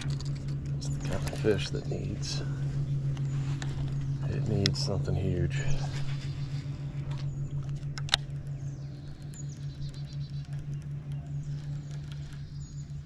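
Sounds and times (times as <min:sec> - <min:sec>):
fishing reel ticking: 0:00.0 - 0:13.0
low pulsing hum: 0:00.0 - 0:13.0
bird chirps: 0:08.5 - 0:13.0.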